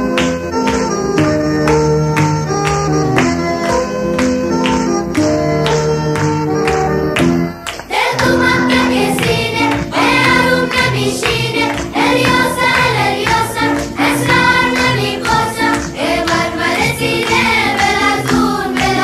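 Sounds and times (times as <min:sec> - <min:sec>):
several voices singing: 0:07.9 - 0:19.0.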